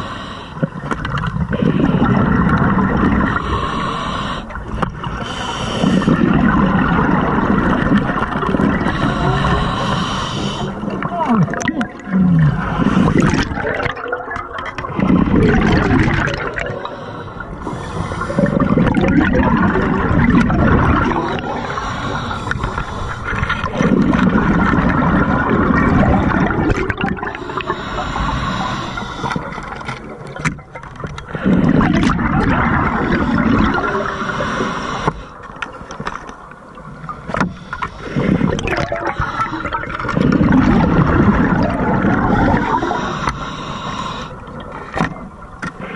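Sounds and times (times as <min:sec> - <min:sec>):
regulator inhaling hiss: 0:00.0 - 0:00.7, 0:03.4 - 0:06.2, 0:08.8 - 0:10.8, 0:16.7 - 0:18.6, 0:21.2 - 0:23.3, 0:27.4 - 0:29.6, 0:33.0 - 0:35.4, 0:37.3 - 0:39.8, 0:42.5 - 0:44.4
bubbling exhaled air underwater: 0:00.0 - 0:35.8, 0:37.0 - 0:45.9.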